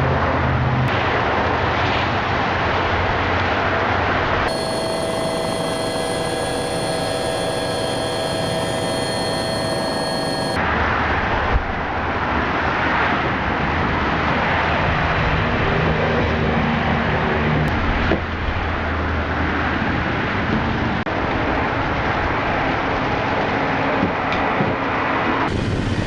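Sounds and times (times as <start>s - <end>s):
street traffic: 0.0s - 26.0s
motor humming: 4.5s - 10.6s
pitched engine tones: 4.5s - 10.6s.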